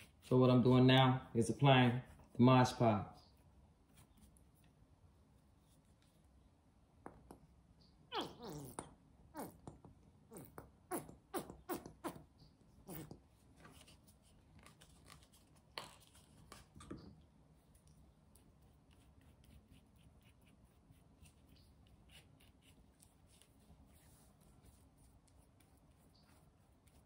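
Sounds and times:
paintbrush strokes on plastic: 0:00.0 - 0:06.4, 0:17.4 - 0:27.0.

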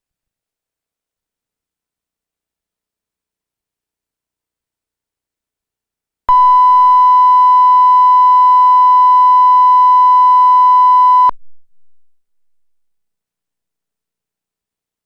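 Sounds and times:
pure test tone beep: 0:06.3 - 0:11.3.

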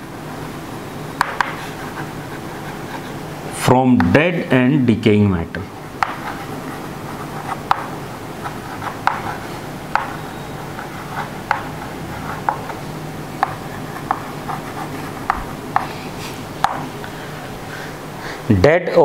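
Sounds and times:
chalk tapping on blackboard: 0:01.2 - 0:03.2, 0:06.0 - 0:12.8, 0:13.4 - 0:16.0, 0:16.6 - 0:16.9.

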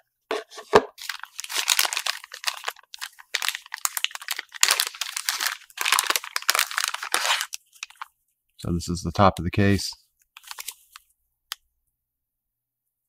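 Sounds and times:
plastic bag crinkling: 0:00.9 - 0:08.1, 0:10.4 - 0:11.0.

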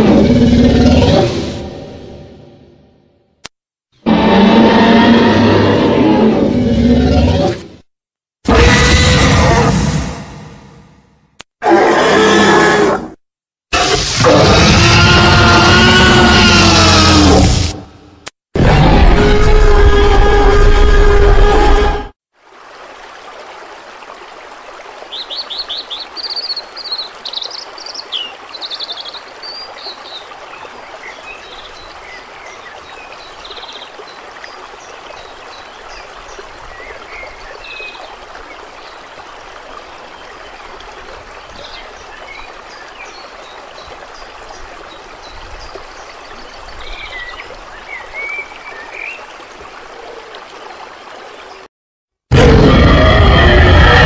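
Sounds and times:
stream water rushing: 0:22.4 - 0:51.7.

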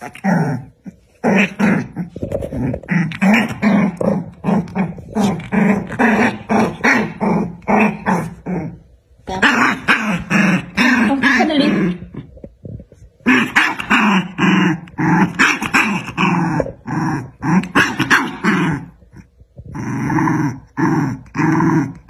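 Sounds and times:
puppies growling and yipping: 0:00.0 - 0:08.8, 0:13.3 - 0:22.0.

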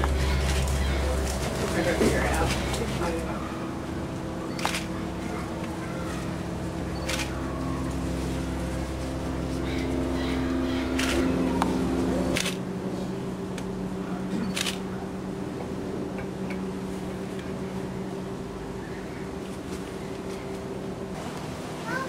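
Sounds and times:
low motor hum: 0:00.0 - 0:22.0.

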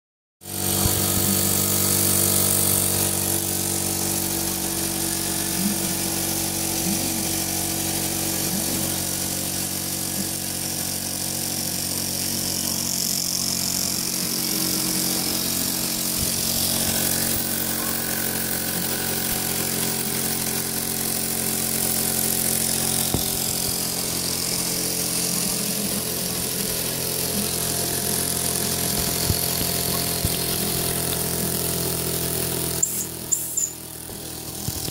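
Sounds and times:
toy steam engine whirring: 0:00.5 - 0:34.9.

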